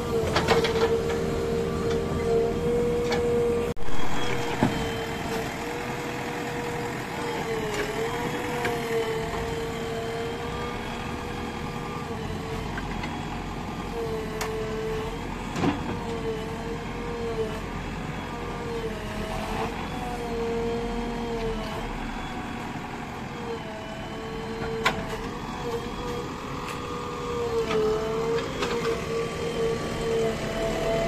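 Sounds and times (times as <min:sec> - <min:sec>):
diesel engine running: 0:00.0 - 0:31.0.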